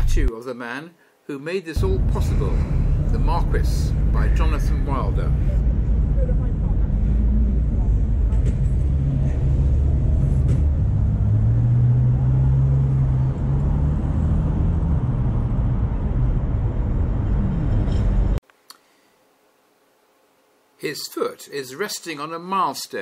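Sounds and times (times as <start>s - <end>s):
road noise rumble: 0.0s - 0.3s, 1.8s - 18.4s
vehicle engine humming: 1.8s - 18.4s.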